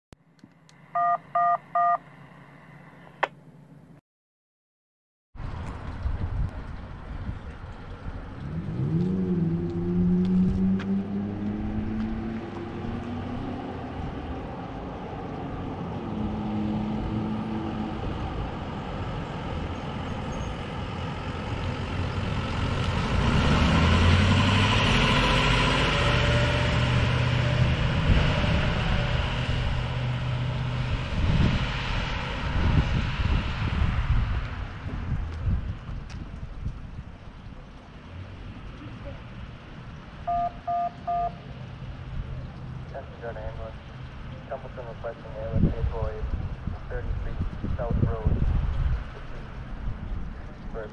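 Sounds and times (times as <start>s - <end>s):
heavy vehicle driving past: 6.9s - 35.6s
engine revving and droning: 7.9s - 35.1s.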